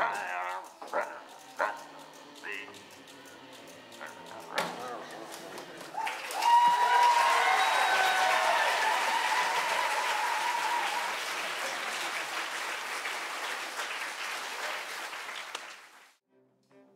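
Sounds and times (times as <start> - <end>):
audience applauding: 4.1 - 16.2.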